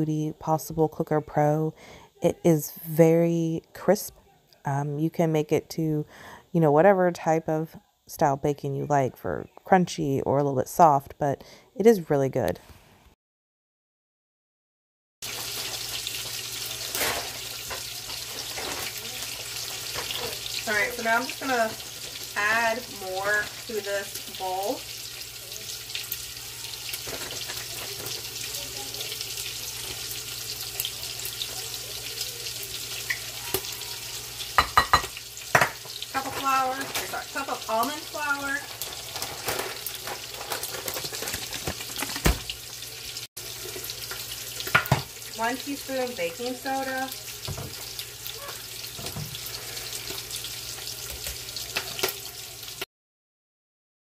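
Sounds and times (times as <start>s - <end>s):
bacon sizzling: 15.2s - 52.9s.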